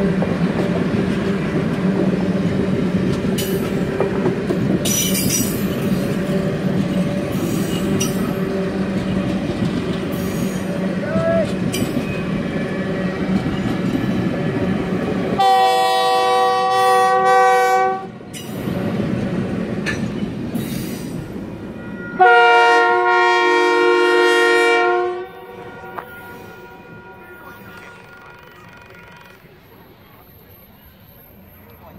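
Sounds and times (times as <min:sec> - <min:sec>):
train cars rumbling and clattering: 0:00.0 - 0:31.9
locomotive horn blasts: 0:15.4 - 0:18.1, 0:21.8 - 0:29.5.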